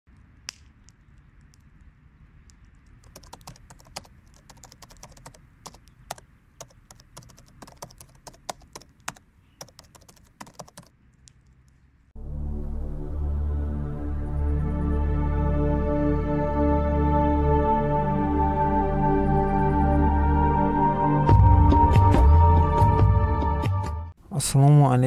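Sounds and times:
keyboard typing: 0:02.8 - 0:11.6
ambient music: 0:12.2 - 0:24.2.

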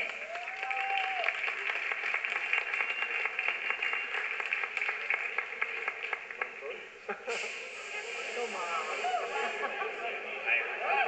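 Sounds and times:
audience applauding: 0:00.0 - 0:06.8
person cheering: 0:00.3 - 0:01.4.

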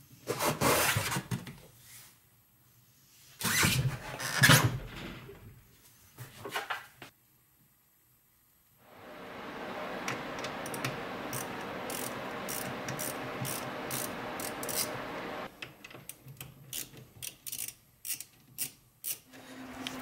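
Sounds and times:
ratchet wrench clicking: 0:10.7 - 0:14.9, 0:16.7 - 0:19.3.

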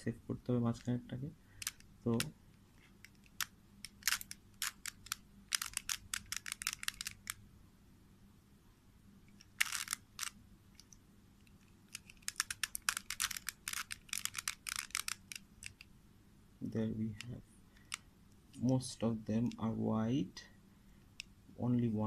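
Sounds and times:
puzzle cube layers clicking: 0:01.6 - 0:07.4, 0:09.3 - 0:15.9.

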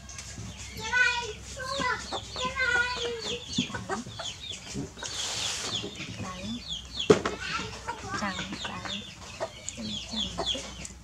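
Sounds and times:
chickens clucking and peeping: 0:00.0 - 0:11.0
brief rustling hiss: 0:05.0 - 0:05.8.

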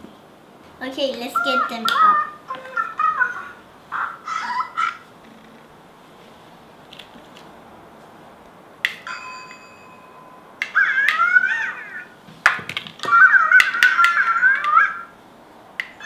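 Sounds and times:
child's voice: 0:00.8 - 0:03.6
electronic chime: 0:09.1 - 0:10.6.

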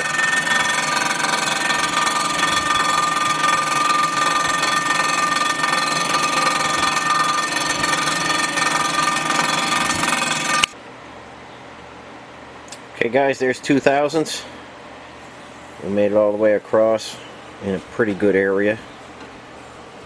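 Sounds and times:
resurfacing machine grinding: 0:00.0 - 0:10.8
steady high tones: 0:00.0 - 0:10.8.

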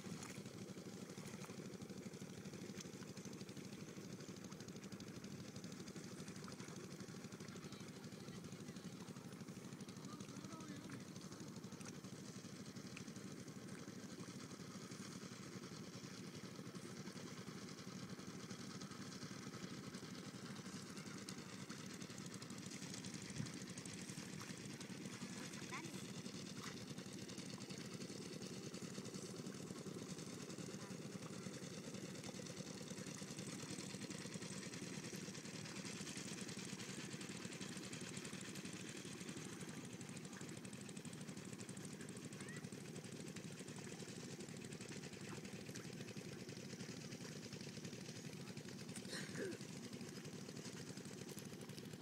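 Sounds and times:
small engine chugging: 0:00.0 - 0:52.0.

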